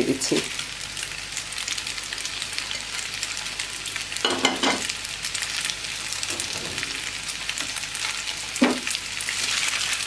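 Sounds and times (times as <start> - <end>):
food sizzling in a frying pan: 0.0 - 10.0.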